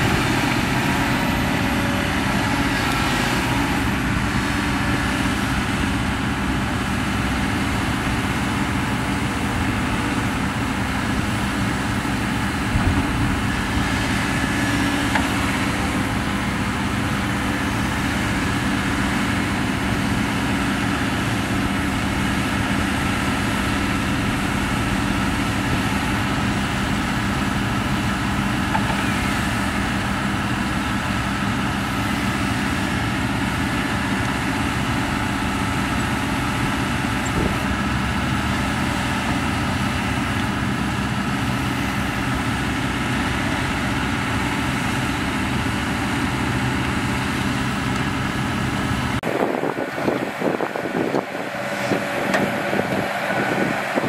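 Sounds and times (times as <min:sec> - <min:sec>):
heavy diesel engine running: 0:00.0 - 0:54.0.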